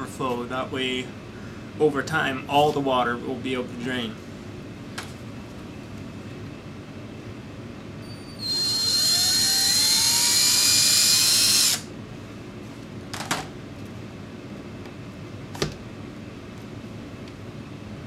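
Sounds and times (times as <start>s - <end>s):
cordless drill whine: 8.0s - 11.9s.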